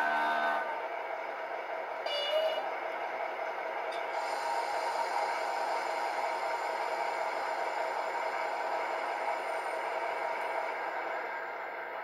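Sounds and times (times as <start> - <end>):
diesel engine sound from loudspeaker: 0.0 - 3.1.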